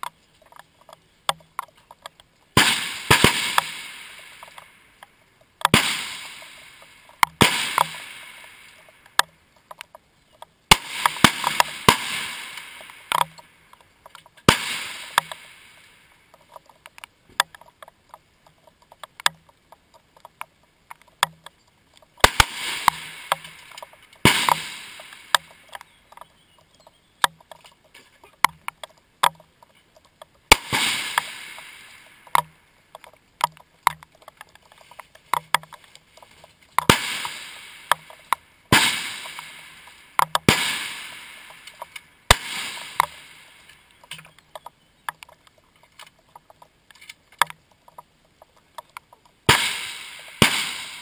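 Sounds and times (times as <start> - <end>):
rifle shots echoing: 2.6 - 4.7, 5.7 - 8.9, 10.7 - 13.5, 14.4 - 16.0, 22.2 - 25.8, 30.5 - 32.5, 36.9 - 43.7, 49.5 - 51.0.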